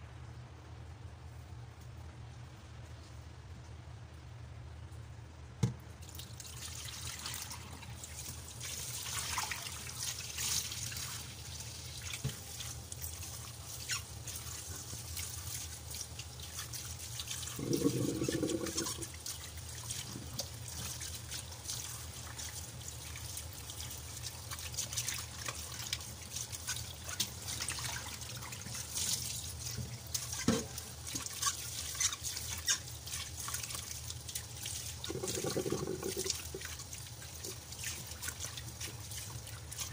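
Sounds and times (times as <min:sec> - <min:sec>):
tap water trickling into a pot: 0:05.6 - 0:39.9
small water splashes: 0:06.0 - 0:39.9
hands rubbing and rinsing: 0:12.0 - 0:33.7, 0:34.4 - 0:39.9.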